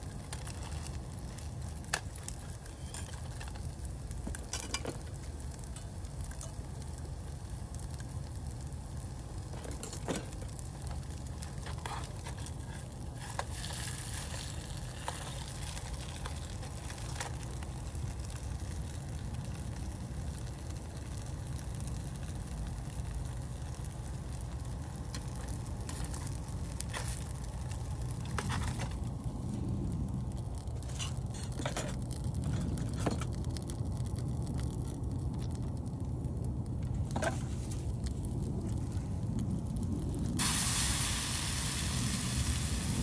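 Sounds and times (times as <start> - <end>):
camp stove burner rushing: 0.1 - 30.0, 40.2 - 43.0
food sizzling: 12.2 - 25.0, 40.4 - 43.0.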